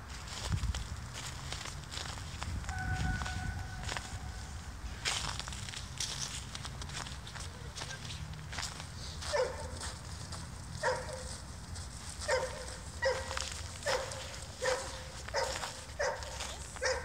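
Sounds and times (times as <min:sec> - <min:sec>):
small dog yapping: 0:12.3 - 0:17.0.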